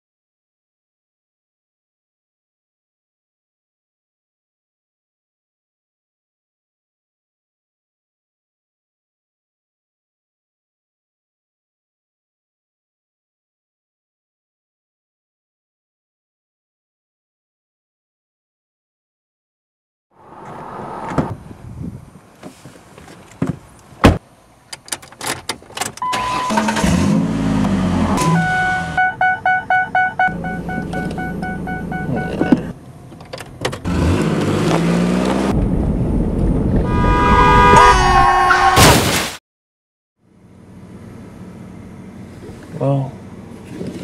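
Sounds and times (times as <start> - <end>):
seat belt warning chime: 26.0 - 26.9, 28.2 - 32.7
loud pitched sound: 28.1 - 32.7.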